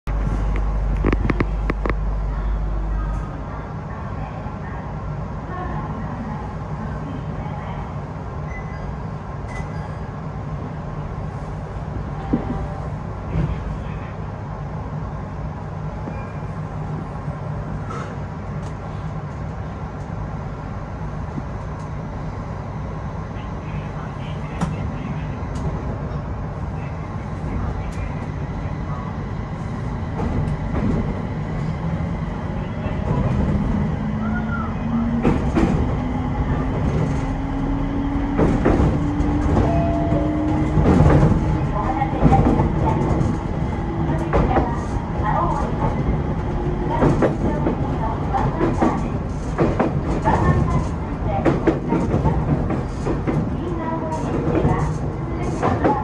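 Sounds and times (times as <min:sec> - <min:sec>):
train running hum: 0:00.0 - 0:56.0
train wheels clacking: 0:32.8 - 0:56.0.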